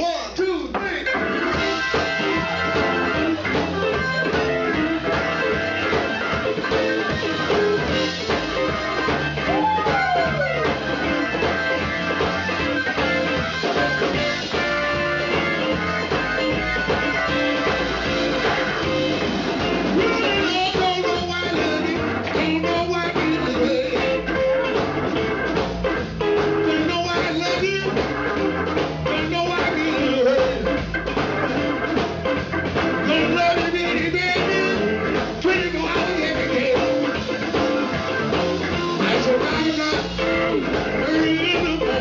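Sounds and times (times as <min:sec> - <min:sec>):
live blues band playing: 0:00.0 - 0:42.0
electric guitar note bending: 0:01.1 - 0:29.2.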